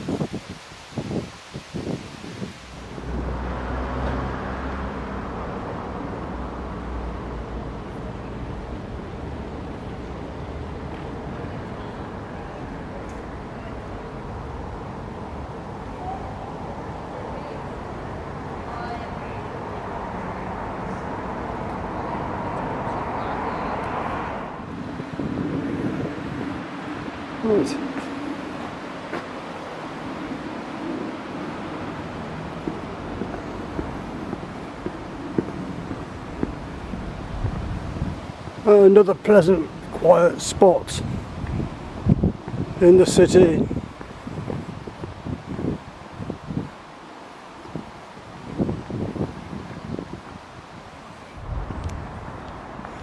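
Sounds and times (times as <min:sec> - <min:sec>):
road traffic hum: 0:00.0 - 0:53.0
vehicle passing: 0:02.8 - 0:11.3, 0:16.4 - 0:38.4, 0:51.3 - 0:53.0.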